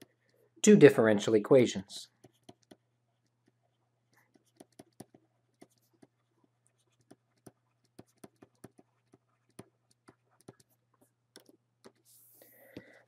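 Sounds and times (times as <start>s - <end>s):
stylus tapping on tablet screen: 2.2s - 6.2s, 6.9s - 12.0s.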